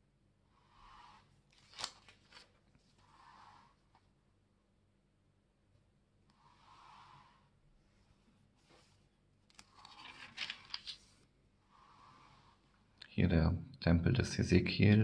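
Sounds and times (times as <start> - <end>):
paper pages rustling: 1.5 - 3.0, 8.6 - 11.3.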